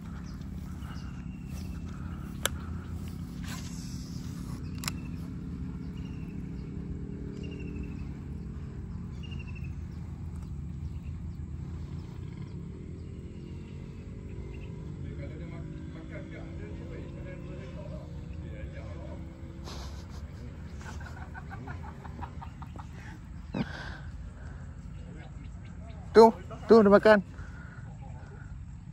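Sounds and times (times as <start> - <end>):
steady low rumble: 0.0 - 28.9
sharp clicks: 1.8 - 5.6.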